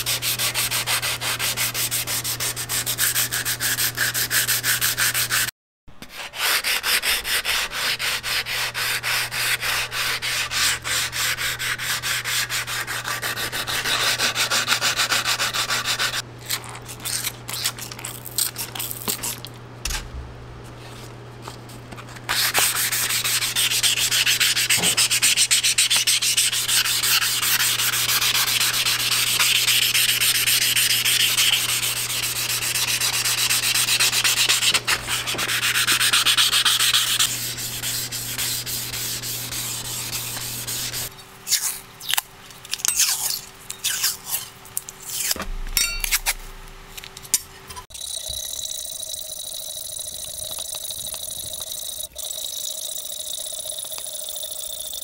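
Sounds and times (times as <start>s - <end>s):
scratchy sanding on metal: 0.0s - 5.5s, 6.1s - 16.2s, 22.3s - 41.1s
steady motor hum: 9.0s - 52.1s.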